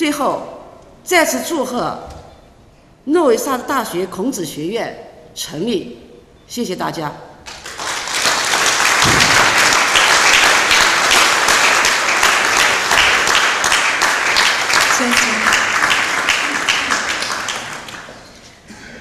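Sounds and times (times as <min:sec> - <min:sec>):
audience applauding: 0:07.5 - 0:18.4.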